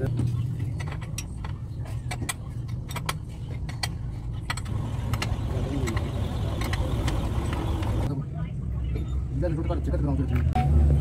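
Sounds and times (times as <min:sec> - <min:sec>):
vehicle engine running: 0:04.3 - 0:08.1.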